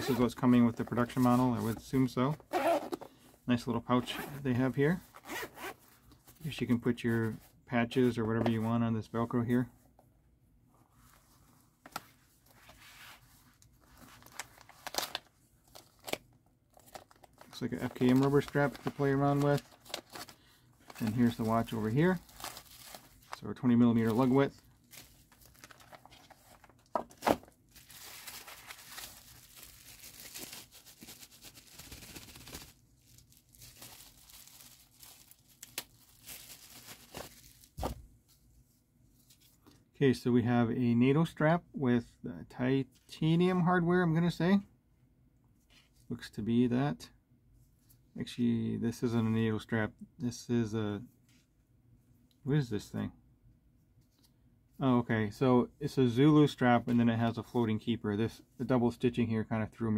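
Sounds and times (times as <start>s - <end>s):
cloth rustling: 4.1s - 7.4s, 16.8s - 38.4s
plastic crinkling: 14.0s - 37.9s.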